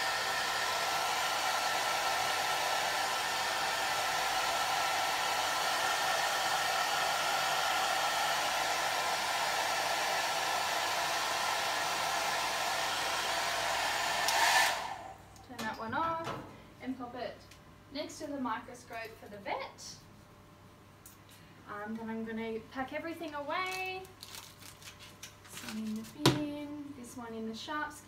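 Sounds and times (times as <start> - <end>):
hairdryer running: 0.0 - 15.4.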